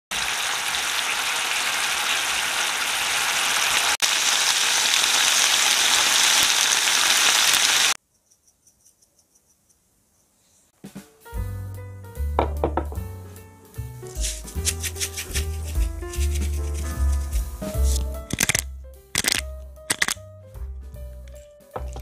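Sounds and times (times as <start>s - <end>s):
food sizzling in frying pan: 0.1s - 8.0s.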